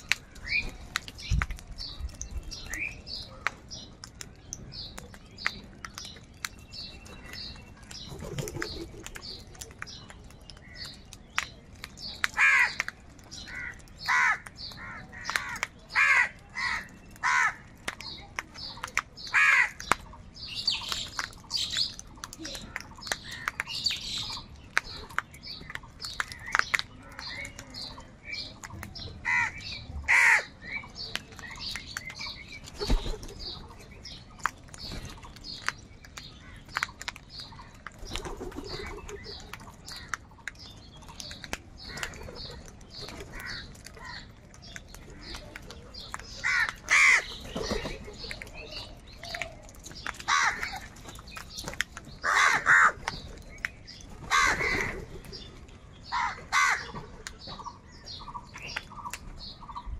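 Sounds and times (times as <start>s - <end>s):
wings flapping: 8.1s - 9.8s, 32.7s - 33.6s, 37.8s - 39.7s
crows cawing: 12.4s - 12.8s, 13.5s - 17.7s, 19.3s - 19.8s, 29.2s - 30.5s, 46.4s - 47.3s, 50.3s - 50.8s, 52.2s - 53.0s, 54.3s - 55.0s, 56.1s - 57.0s.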